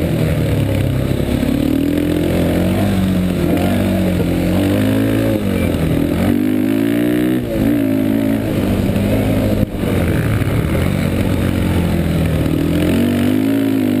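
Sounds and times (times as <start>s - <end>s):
atv engine running hard: 0.0s - 14.0s.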